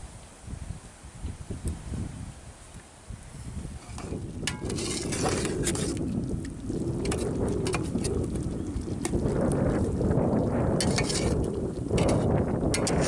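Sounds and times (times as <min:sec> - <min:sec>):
metal ladle scraping a pot: 0:03.7 - 0:06.1, 0:07.0 - 0:09.3, 0:10.7 - 0:13.0.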